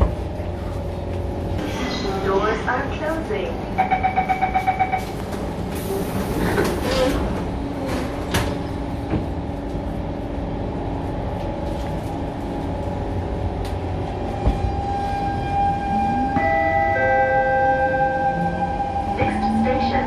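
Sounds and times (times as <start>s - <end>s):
train car rumble: 0.0s - 20.0s
door-closing warning beeps: 3.8s - 5.2s.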